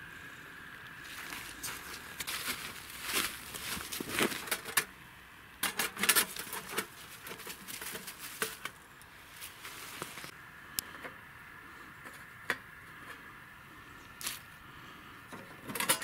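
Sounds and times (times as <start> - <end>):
footsteps in snow and dry leaves: 1.0 - 4.7, 6.3 - 10.4.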